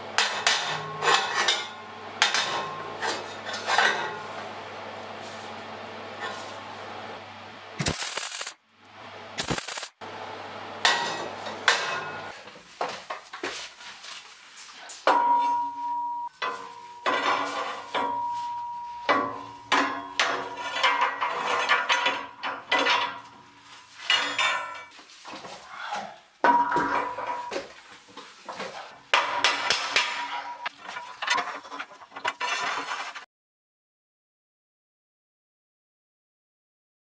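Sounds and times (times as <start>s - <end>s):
ringing steel tone: 15.1s - 20.7s
steel plates clanking: 16.4s - 25.0s, 29.2s - 33.2s.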